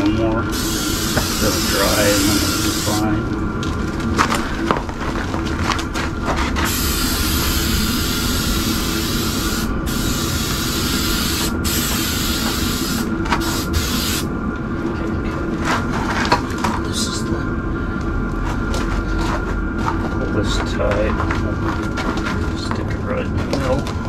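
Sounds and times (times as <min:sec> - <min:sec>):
aerosol can hissing: 0:00.5 - 0:03.1, 0:06.7 - 0:14.3.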